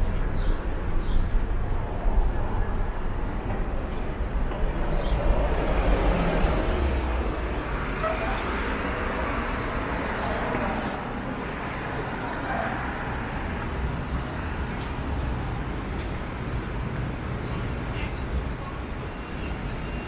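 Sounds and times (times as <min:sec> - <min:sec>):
passing cars and buses: 0:00.0 - 0:20.0.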